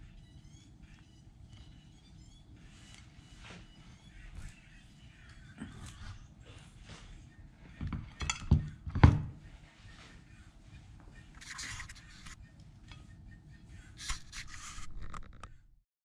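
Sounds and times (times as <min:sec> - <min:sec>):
soft scraping and rustling: 0:02.6 - 0:04.8.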